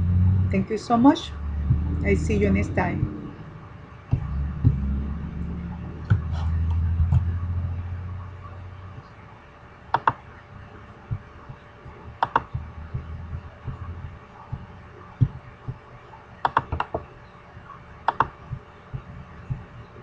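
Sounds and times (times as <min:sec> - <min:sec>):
low steady hum: 0:00.0 - 0:20.0
keyboard and mouse clicks: 0:09.9 - 0:10.2, 0:12.2 - 0:13.8, 0:16.4 - 0:17.1, 0:18.1 - 0:19.1.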